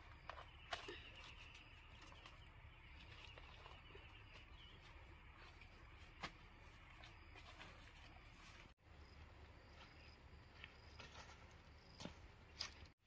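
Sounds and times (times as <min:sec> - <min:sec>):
steps through leafy plants: 0:00.7 - 0:08.8.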